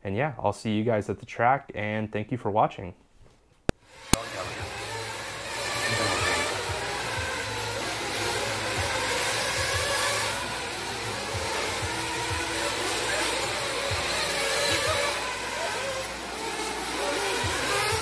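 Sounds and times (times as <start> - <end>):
small model engines buzzing: 3.8 - 18.0.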